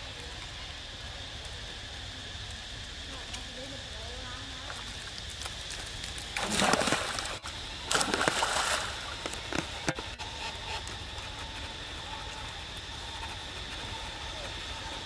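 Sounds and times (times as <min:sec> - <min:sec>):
water splashing: 0:06.3 - 0:09.7.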